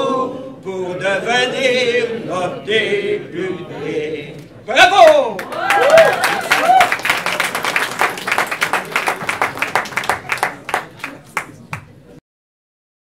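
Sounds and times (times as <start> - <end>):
audience applauding: 5.4 - 11.9.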